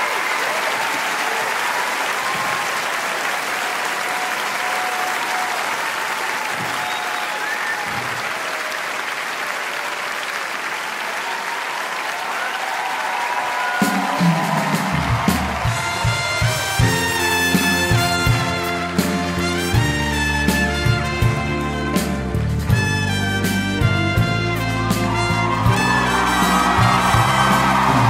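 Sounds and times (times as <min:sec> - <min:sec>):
cheers and whistles: 0:00.0 - 0:16.9, 0:24.8 - 0:28.0
audience applauding: 0:00.0 - 0:28.0.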